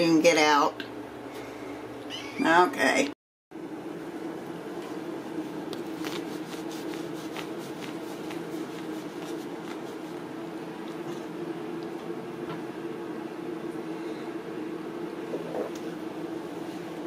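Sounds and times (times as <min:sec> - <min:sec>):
steady low hum: 0:00.0 - 0:17.0
towel rubbing on wet fur: 0:05.2 - 0:11.3.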